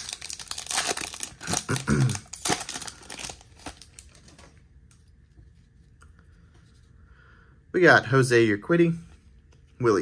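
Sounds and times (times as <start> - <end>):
foil wrapper crinkling: 0.0 - 4.6
faint handling of cards: 9.0 - 10.0.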